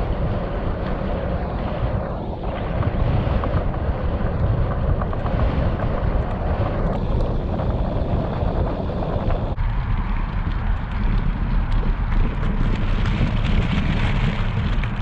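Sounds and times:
bicycle tyres humming: 0.0 - 15.0
wind buffeting microphone: 0.0 - 15.0.

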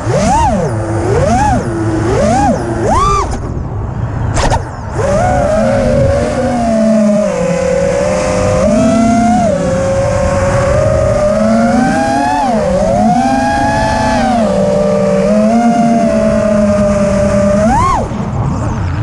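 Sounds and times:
quadcopter motors whining: 0.0 - 19.0.

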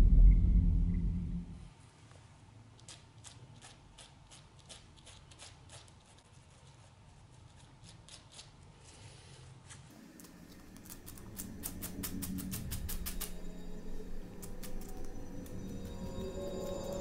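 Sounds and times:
low hum: 0.0 - 1.8, 10.0 - 17.0.

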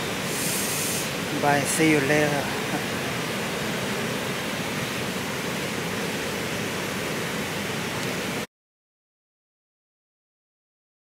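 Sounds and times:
water rushing through channel: 0.0 - 8.5.

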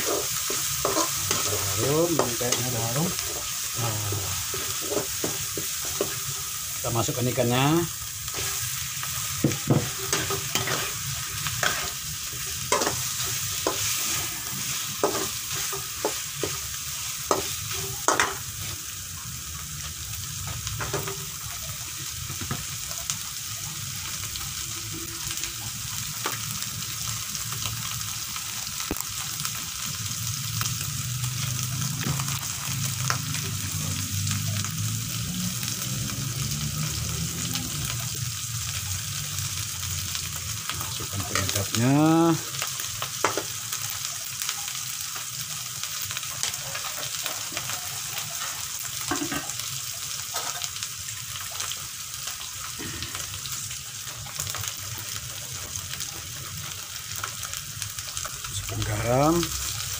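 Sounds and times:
metal spatula scraping a pan: 0.0 - 3.5, 9.8 - 12.0
chicken sizzling in a wok: 0.0 - 59.9.

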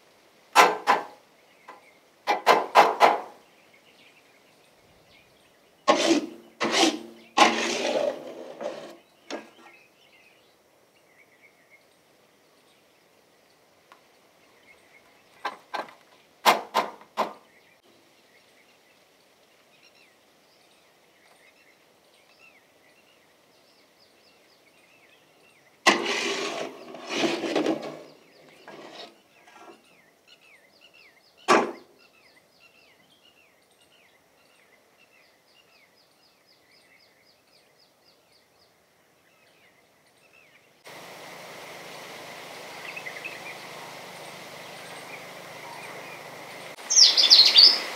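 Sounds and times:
faint birdsong: 0.0 - 47.9
metal scraping and clattering: 5.9 - 9.5, 25.9 - 29.8
sharp knock: 31.5 - 31.8.

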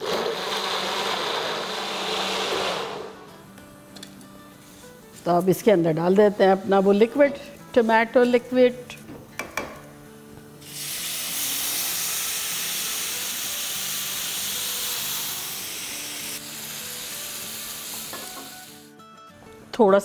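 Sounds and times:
liquid sizzling in hot pan: 10.6 - 18.9.

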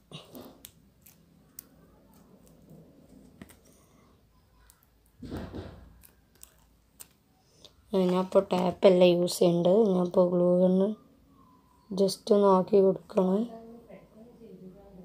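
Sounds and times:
fingers twisting thin wires: 0.1 - 3.8, 4.5 - 7.2.

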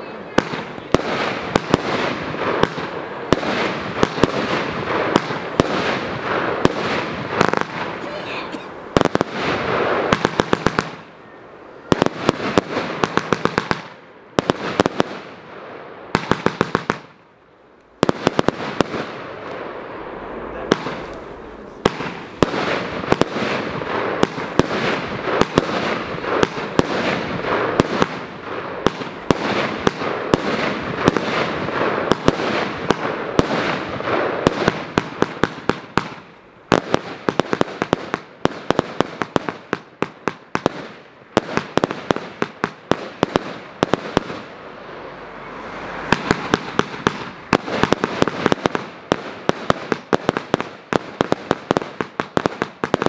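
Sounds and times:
fireworks firing sharp shots: 0.0 - 53.0.

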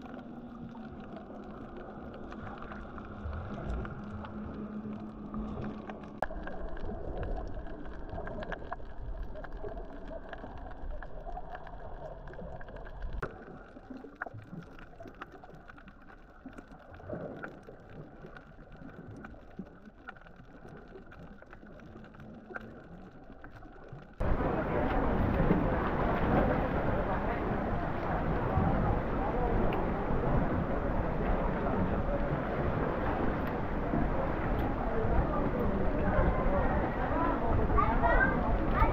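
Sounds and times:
water noise: 0.0 - 38.9
boat rumble: 24.2 - 38.9.

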